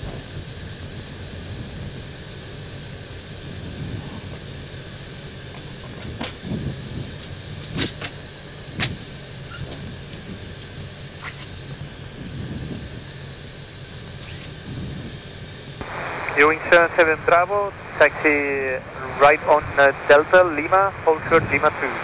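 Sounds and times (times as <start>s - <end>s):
airplane cockpit rumble: 0.0s - 22.0s.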